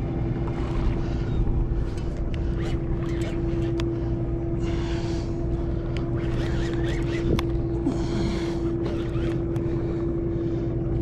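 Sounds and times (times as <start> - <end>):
boat machinery humming: 0.0 - 11.0
sharp clicks: 5.9 - 7.6.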